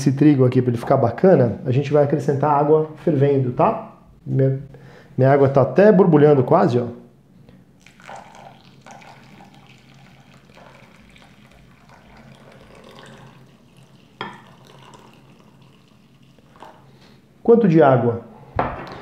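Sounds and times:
water pouring: 7.8 - 16.9.

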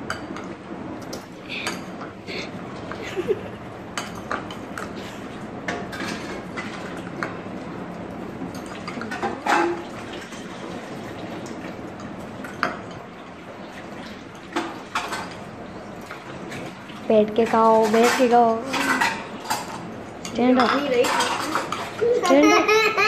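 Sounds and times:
cutlery clinking on ceramic bowls: 4.0 - 4.9, 17.5 - 22.4.

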